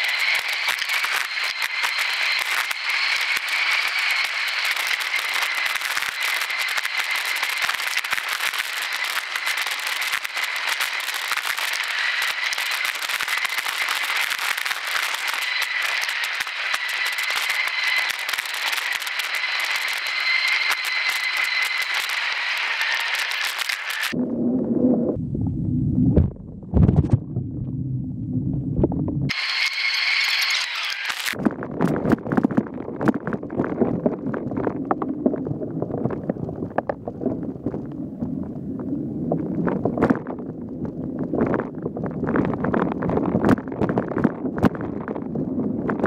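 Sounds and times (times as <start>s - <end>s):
bike tyres and frame rattling: 0.0s - 24.2s
steady high whine: 0.0s - 35.2s.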